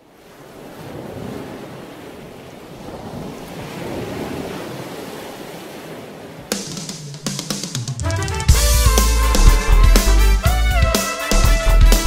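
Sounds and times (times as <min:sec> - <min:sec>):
water rushing in boat wake: 0:00.0 - 0:07.6
wind buffeting microphone: 0:00.5 - 0:07.2.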